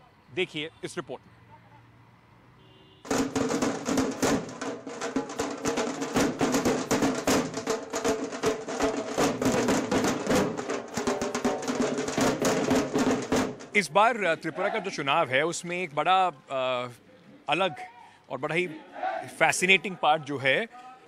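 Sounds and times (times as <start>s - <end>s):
fast dense drumming: 3.1s - 13.9s.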